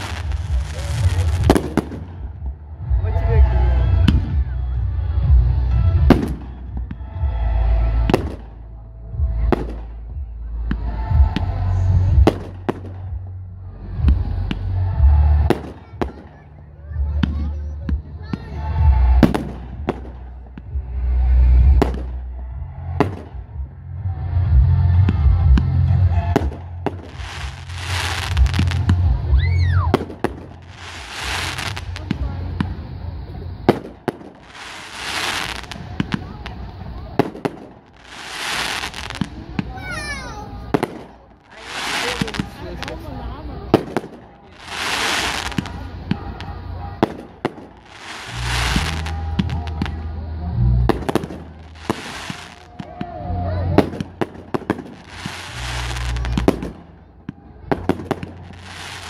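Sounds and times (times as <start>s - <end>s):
low rumbling: 0.0s - 41.6s, 45.5s - 59.0s
fireworks bursting with bangs: 0.0s - 59.0s
firework whistle: 25.1s - 32.0s, 43.8s - 56.9s.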